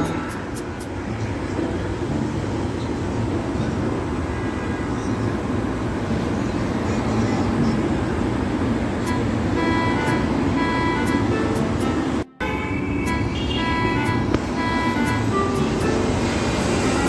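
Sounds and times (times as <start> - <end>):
faint music: 0.0 - 17.0
street traffic: 0.0 - 17.0.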